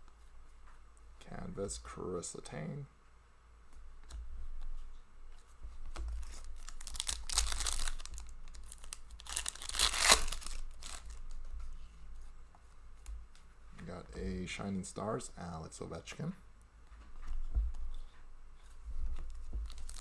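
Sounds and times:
foil wrapper tearing and crinkling: 0:06.2 - 0:11.2, 0:19.7 - 0:20.0.

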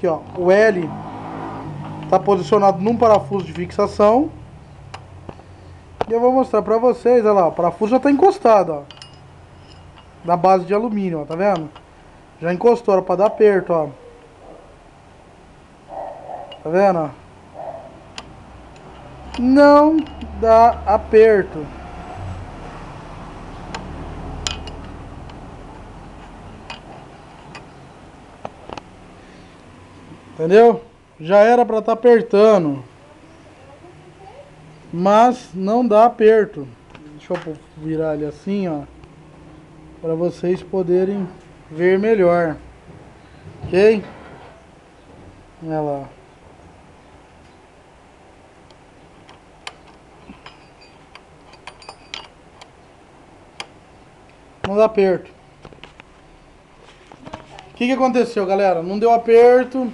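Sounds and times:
wrench metallic clicks: 0:18.1 - 0:20.9, 0:48.7 - 0:52.8
wrench clicking on bolt: 0:18.2 - 0:20.8.

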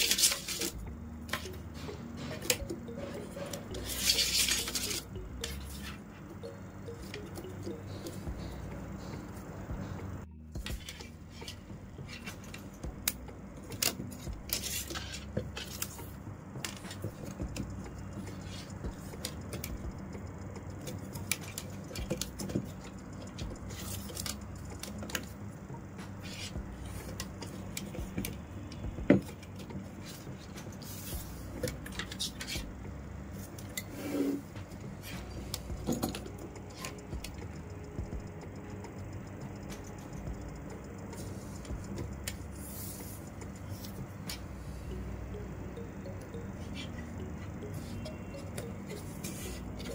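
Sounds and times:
plastic strands clicking and rustling: 0:00.0 - 0:01.6, 0:03.6 - 0:06.0
steady low hum: 0:00.0 - 0:49.9.

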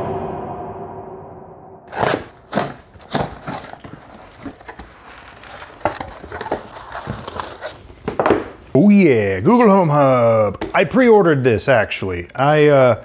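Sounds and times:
package crinkling and rustling: 0:02.0 - 0:08.3.

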